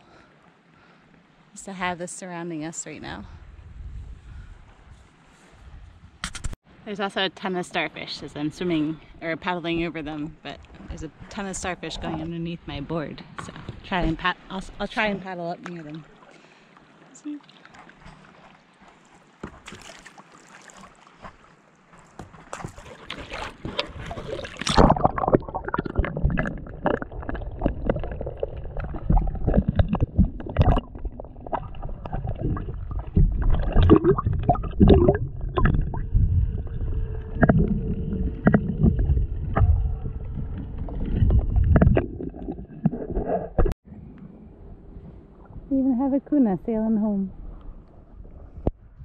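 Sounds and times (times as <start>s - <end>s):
water splashing: 9.8s - 44.5s
underwater knocks: 23.6s - 43.8s
muffled underwater rumble: 24.0s - 49.0s.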